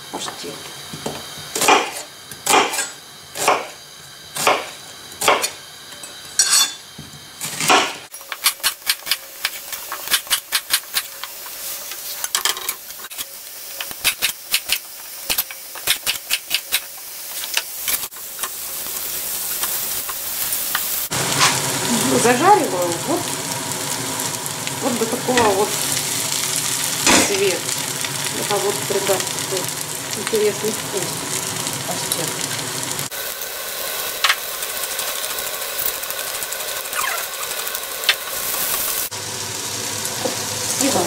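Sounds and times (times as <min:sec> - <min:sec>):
frying sizzle: 0:00.0 - 0:41.0
knife chopping on cutting board: 0:01.6 - 0:02.8, 0:03.4 - 0:03.7, 0:04.4 - 0:05.5.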